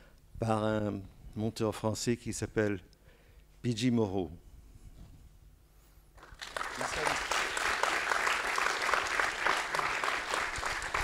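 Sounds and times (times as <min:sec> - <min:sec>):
audience clapping: 0:06.2 - 0:11.0.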